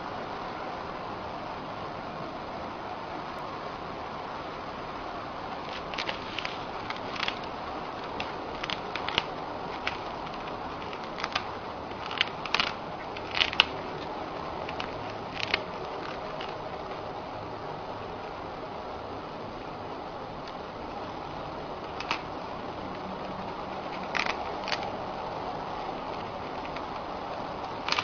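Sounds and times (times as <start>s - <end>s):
steady background hiss: 0.0s - 28.0s
hamster crunching cracker: 5.7s - 17.0s, 21.9s - 22.3s, 23.8s - 25.0s, 27.7s - 28.0s.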